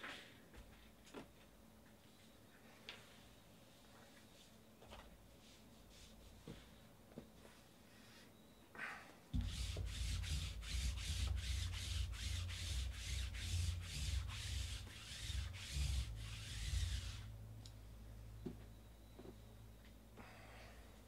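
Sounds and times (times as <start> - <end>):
lint roller rolling on mat: 9.3 - 17.4.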